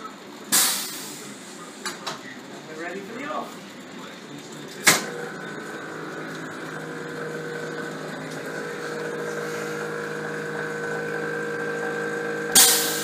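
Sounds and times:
motorcycle mechanical hum: 0.0s - 13.0s
sharp clunk: 4.8s - 5.1s.

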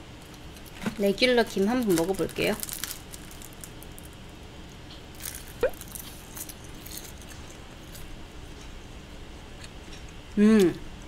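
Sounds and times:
seaweed sheets crunching: 1.8s - 3.9s.

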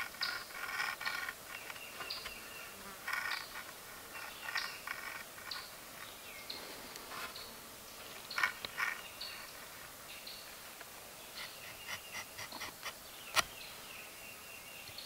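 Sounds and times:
insects buzzing: 0.0s - 15.0s.

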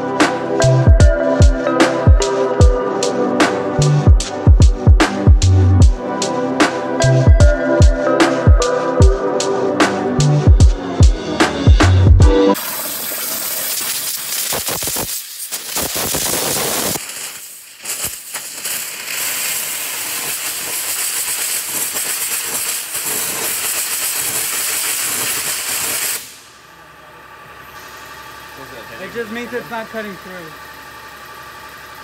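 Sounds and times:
waterjet cutter hissing: 12.6s - 26.5s, 27.4s - 32.0s.

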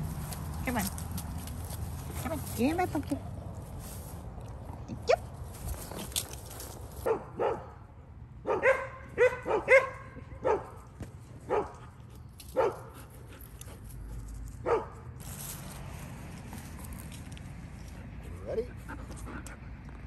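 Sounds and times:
dog barking: 7.0s - 7.8s, 8.4s - 10.8s, 11.5s - 11.8s, 12.6s - 12.9s, 14.6s - 15.0s.

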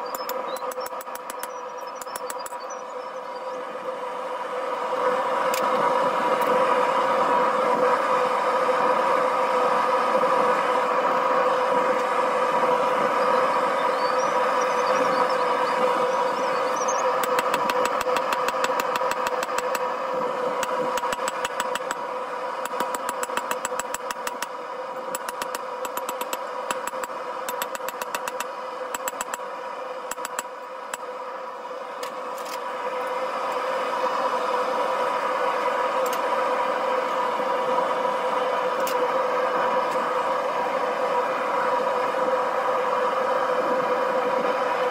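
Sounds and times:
forge burner drone: 0.0s - 44.9s.

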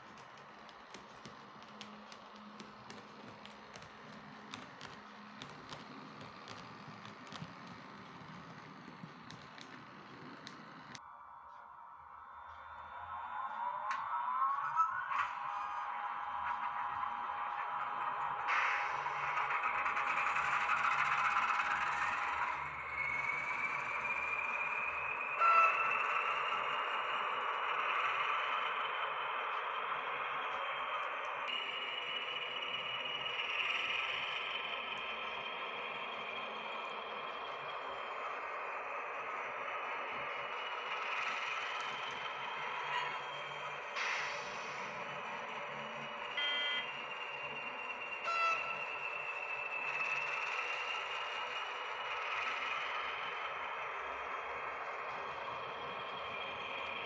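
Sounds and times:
model train motor whine: 0.0s - 11.0s, 17.4s - 57.0s
model train motor whirring: 0.0s - 11.0s.

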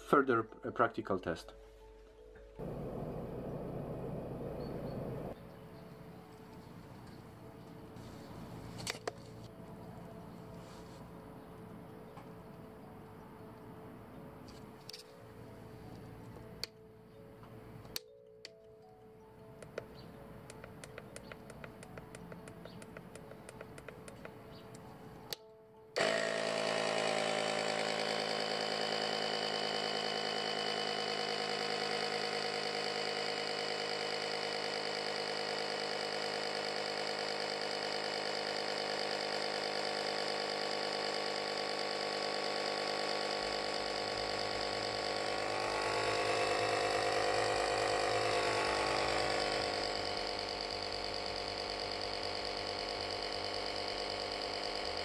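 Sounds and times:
tyre compressor running: 2.6s - 12.9s, 19.4s - 25.4s, 26.0s - 55.0s
faint regular ticking: 19.4s - 24.8s.

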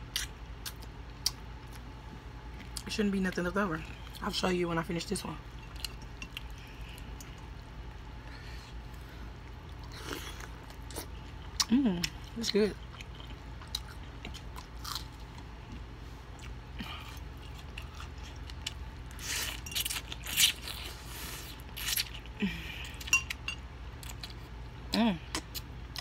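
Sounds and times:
chewing and lip smacking: 0.1s - 1.9s, 9.4s - 22.4s.

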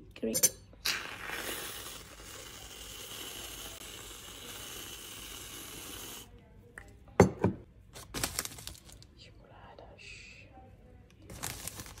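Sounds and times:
whipped cream can hissing: 0.8s - 6.3s.

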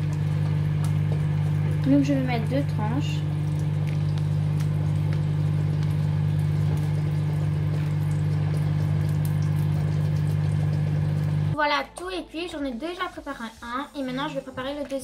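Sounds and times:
bacon frying in a pan: 0.0s - 11.6s.

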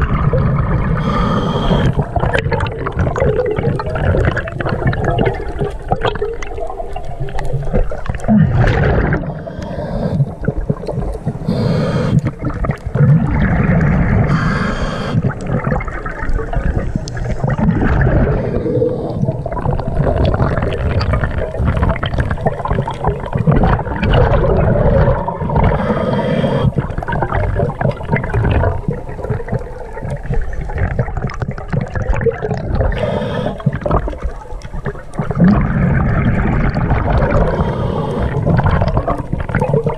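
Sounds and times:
exhaled bubbles rumbling underwater: 0.0s - 39.9s
regulator inhalation hiss: 1.0s - 2.0s, 11.4s - 12.3s, 14.3s - 15.3s, 25.7s - 26.8s, 32.9s - 33.8s, 37.5s - 38.5s.

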